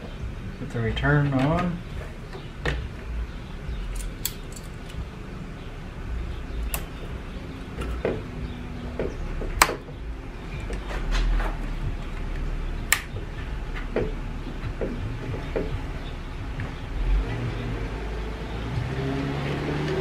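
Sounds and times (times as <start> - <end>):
pliers clicking on hose clamp: 3.9 - 5.0.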